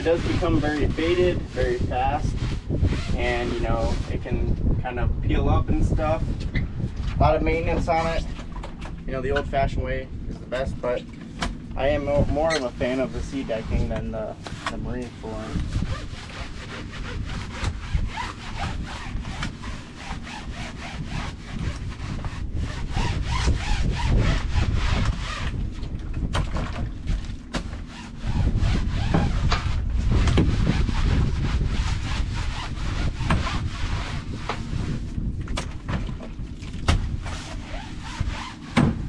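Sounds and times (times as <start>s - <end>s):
brush scrubbing deck: 0.0s - 4.6s, 11.8s - 25.6s, 27.0s - 35.4s, 36.4s - 39.0s.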